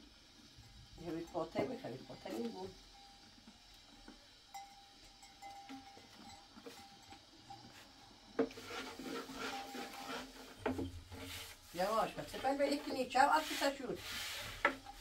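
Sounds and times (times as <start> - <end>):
rolling pin rolling dough: 8.4 - 15.0.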